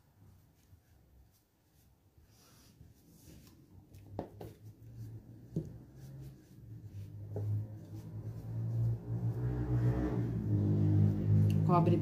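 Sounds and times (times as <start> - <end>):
paintbrush strokes: 0.0 - 12.0.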